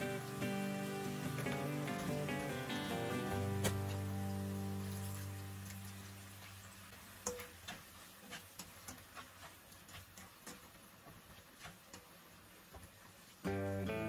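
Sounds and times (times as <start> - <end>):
background music: 0.0 - 5.8, 13.5 - 14.0
kitchen utensils clicking and tapping: 6.4 - 12.9.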